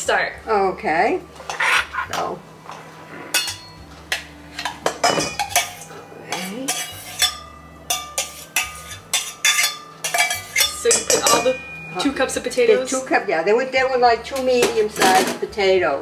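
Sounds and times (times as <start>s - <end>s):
saucepan clinking against metal bowl: 3.4s - 13.0s.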